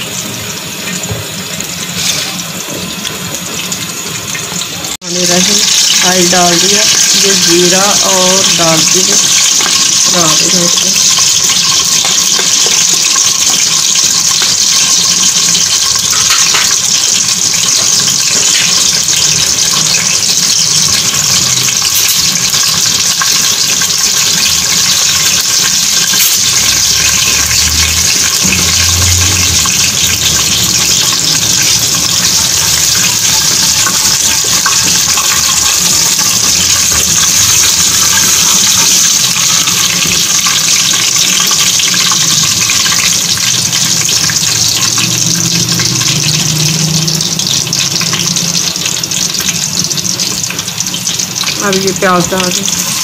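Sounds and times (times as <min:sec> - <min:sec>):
spices sizzling in hot oil: 0:00.0 - 0:53.0.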